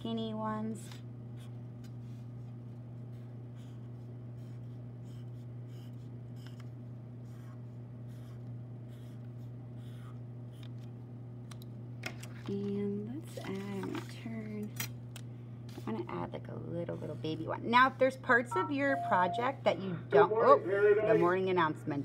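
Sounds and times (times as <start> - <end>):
steady low hum: 0.0 - 22.0
marker scratching on paper: 3.1 - 6.6, 7.2 - 10.2.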